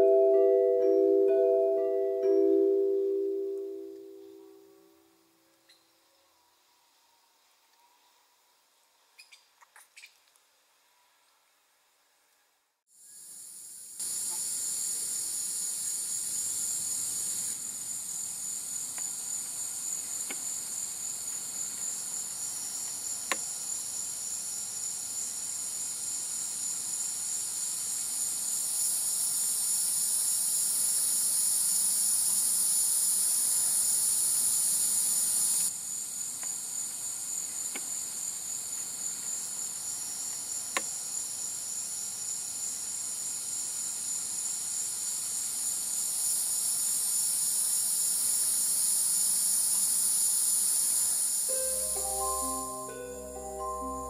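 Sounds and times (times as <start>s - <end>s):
night insects chorus: 13.0s - 53.9s.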